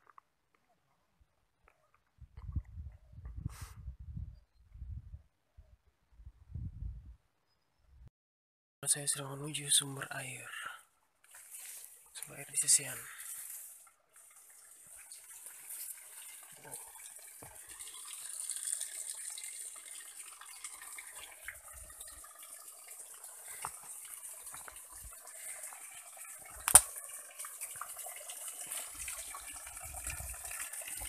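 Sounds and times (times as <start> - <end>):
water splashing onto rocks: 26.2 - 27.8.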